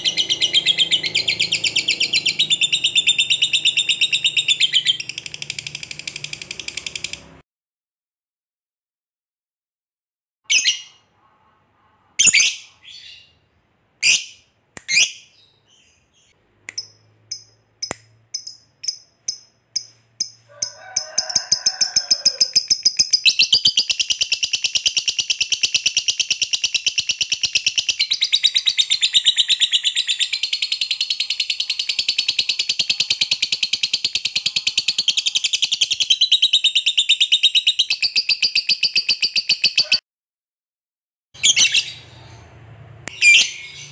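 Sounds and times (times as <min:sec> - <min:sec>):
sharp high bird chirps: 0:00.0 - 0:07.3, 0:12.2 - 0:40.0, 0:41.4 - 0:42.5, 0:43.1 - 0:43.9.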